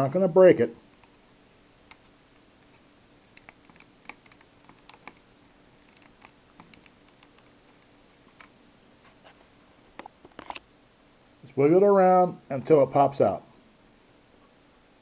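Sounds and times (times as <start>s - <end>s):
small plastic clicks and ticks: 5.8s - 7.5s.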